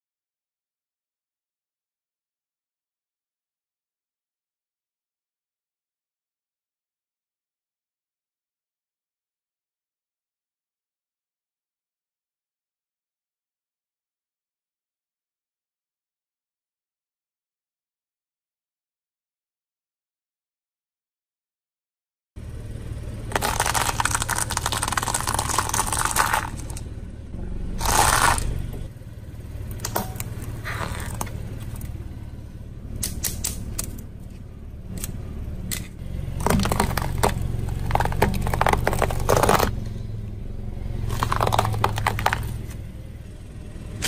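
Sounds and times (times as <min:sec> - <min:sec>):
car engine humming low: 0:22.4 - 0:44.0
car tyre crushing things on concrete: 0:23.2 - 0:26.9, 0:27.7 - 0:28.9, 0:29.5 - 0:32.1, 0:33.0 - 0:40.0, 0:40.8 - 0:42.9
seed shells crackling: 0:23.3 - 0:26.8, 0:27.8 - 0:28.5, 0:36.4 - 0:39.7, 0:41.1 - 0:42.6
wire strainer clicking and crunching: 0:23.3 - 0:26.8, 0:27.8 - 0:28.5, 0:35.7 - 0:39.7, 0:41.1 - 0:42.6.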